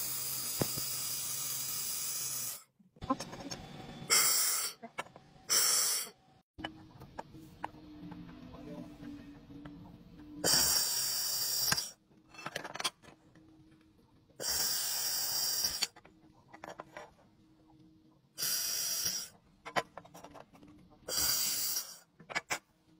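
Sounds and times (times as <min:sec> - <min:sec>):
laser welder hissing: 0:00.0 - 0:02.6, 0:10.4 - 0:12.0, 0:14.4 - 0:15.9, 0:18.4 - 0:19.3, 0:21.1 - 0:22.0.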